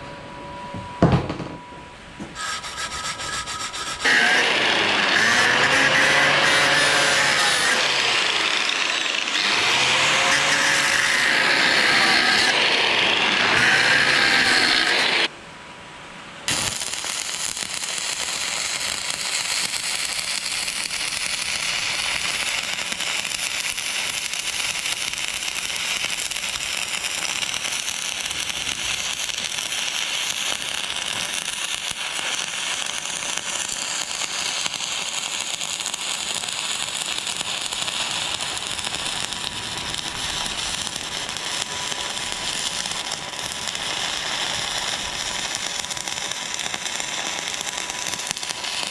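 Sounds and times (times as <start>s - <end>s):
angle grinder grinding steel: 2.4s - 15.3s
welding arc crackling: 2.4s - 15.3s, 16.5s - 48.9s.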